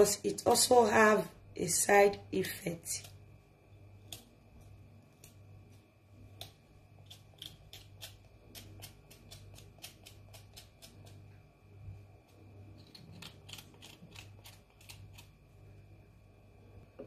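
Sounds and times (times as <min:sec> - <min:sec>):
low steady hum: 0:00.0 - 0:17.0
knife scraping nut skin: 0:06.3 - 0:11.3, 0:12.7 - 0:15.4.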